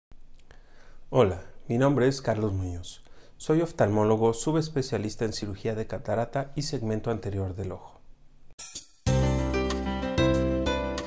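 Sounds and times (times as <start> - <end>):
instrumental background music: 8.6 - 11.0.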